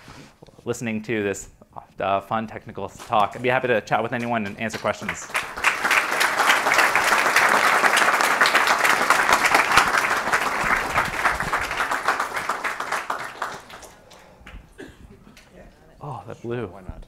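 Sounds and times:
audience applauding: 4.7s - 14.7s.

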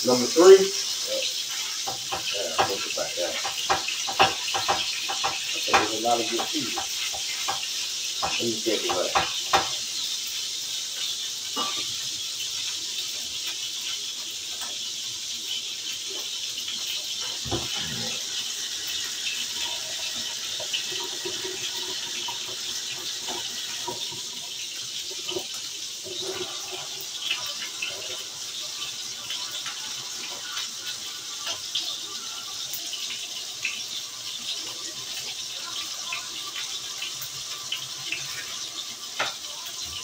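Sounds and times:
patties sizzling in a skillet: 0.0s - 40.0s.

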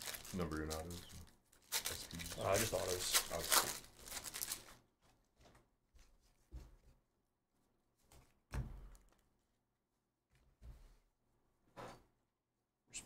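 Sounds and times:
foil wrapper crinkling: 0.0s - 4.8s.

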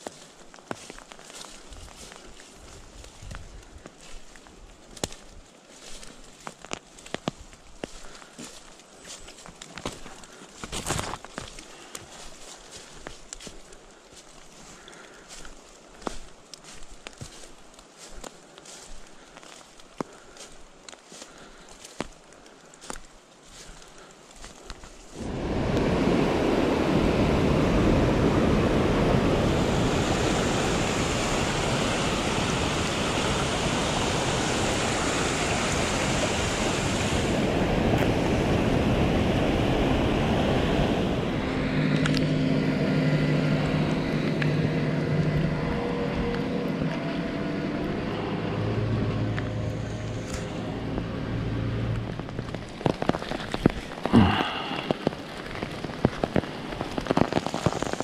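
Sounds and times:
stream rushing over rocks: 25.2s - 42.3s, 49.3s - 58.0s
sharp taps and rustles: 52.0s - 54.2s.

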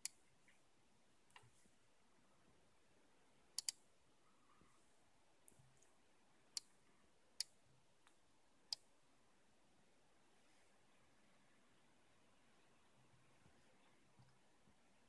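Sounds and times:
computer mouse clicks: 3.6s - 3.8s.

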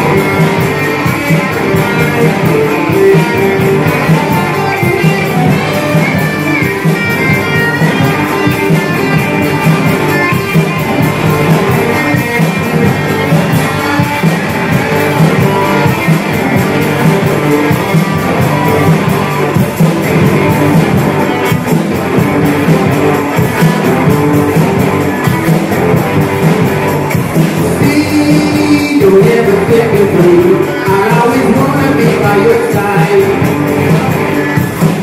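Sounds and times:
electric guitars: 0.0s - 35.0s
live rock band playing: 0.0s - 35.0s.

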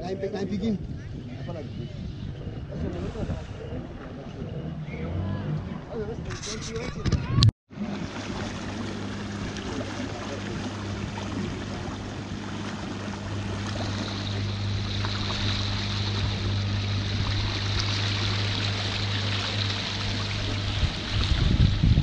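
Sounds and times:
water rushing along hull: 0.0s - 6.8s, 7.7s - 22.0s
low engine hum: 0.0s - 22.0s.

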